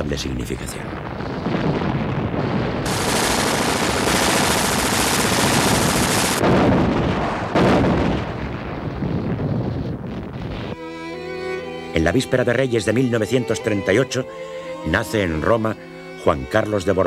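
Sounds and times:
loud artillery shots: 0:01.7 - 0:09.8
rapid gunfire: 0:02.8 - 0:06.6.

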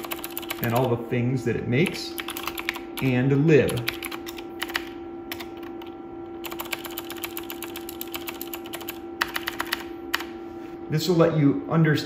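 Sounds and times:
steady hum: 0:00.0 - 0:12.0.

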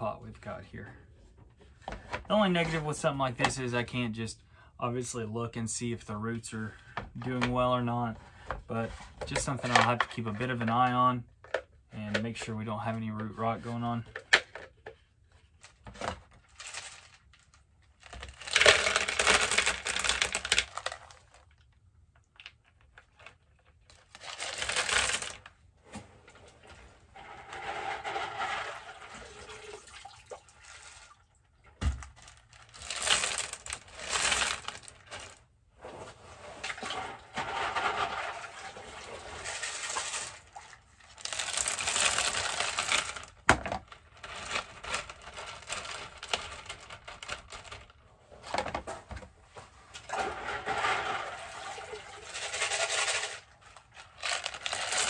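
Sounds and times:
clay pebbles poured into plastic pot: 0:09.2 - 0:11.0, 0:16.4 - 0:21.7, 0:22.3 - 0:25.5, 0:26.4 - 0:48.0, 0:49.9 - 0:55.0.

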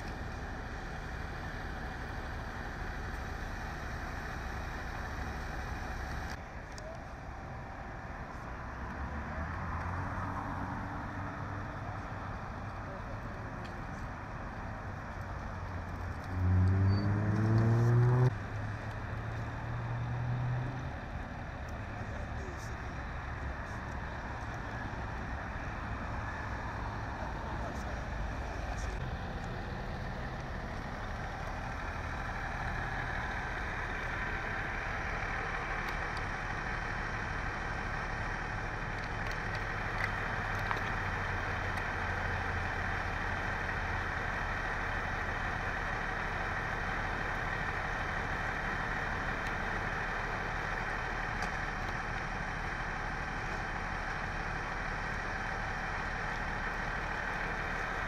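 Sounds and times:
vehicle engines idling: 0:00.0 - 0:58.0.

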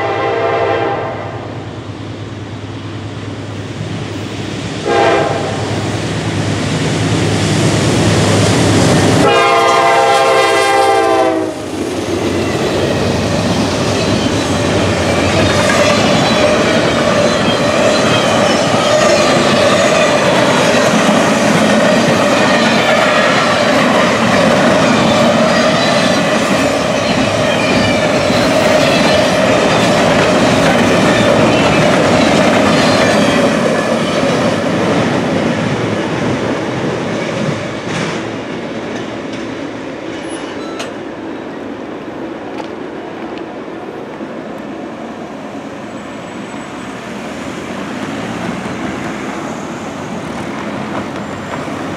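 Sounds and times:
locomotive horn: 0:00.0 - 0:01.5, 0:04.8 - 0:05.7, 0:09.2 - 0:11.6
train wheels rumbling on rails: 0:00.0 - 0:51.9.

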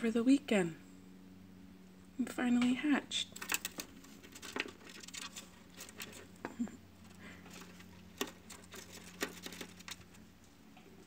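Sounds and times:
faint low hum: 0:00.0 - 0:11.0
soft clicks and rustles: 0:03.3 - 0:11.0.

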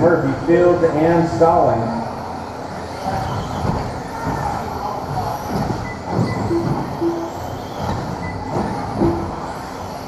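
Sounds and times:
rc car motors whining: 0:01.0 - 0:10.0
tyre and chassis noise: 0:02.1 - 0:10.0.

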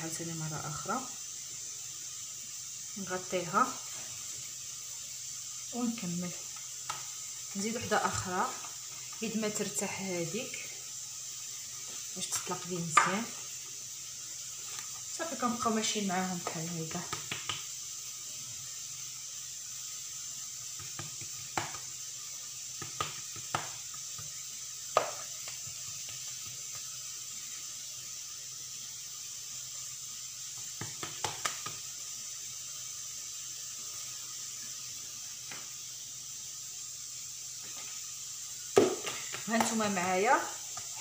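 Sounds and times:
faint steady hiss: 0:00.0 - 0:41.0
hands tapping dough on stone: 0:06.8 - 0:07.1, 0:17.0 - 0:17.7, 0:20.8 - 0:21.9, 0:22.8 - 0:26.9, 0:30.8 - 0:31.8.

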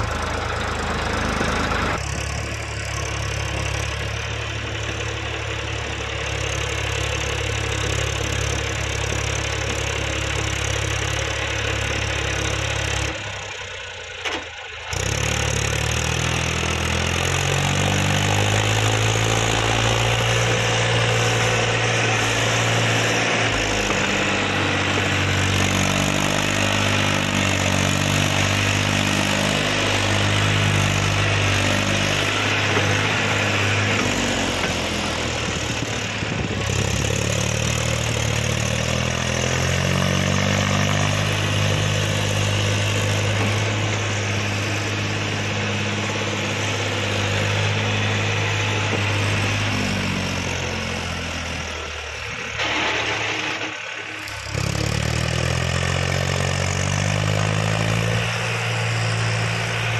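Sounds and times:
diesel tractor engine working: 0:00.0 - 0:59.9.

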